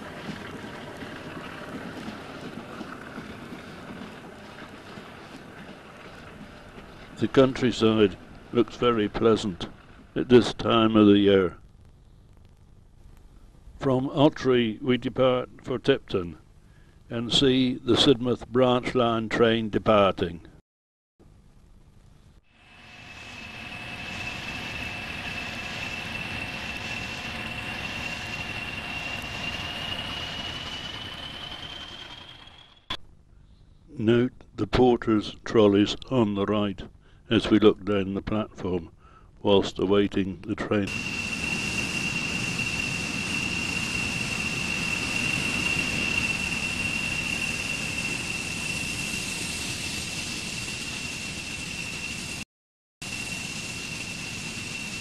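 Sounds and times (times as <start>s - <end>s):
diesel train running: 0.0s - 10.6s, 22.6s - 33.0s, 40.9s - 52.4s
high whine rising in pitch: 22.5s - 33.0s, 40.9s - 52.4s, 53.0s - 55.0s
machine hiss: 22.6s - 32.8s, 40.9s - 52.4s, 53.0s - 55.0s.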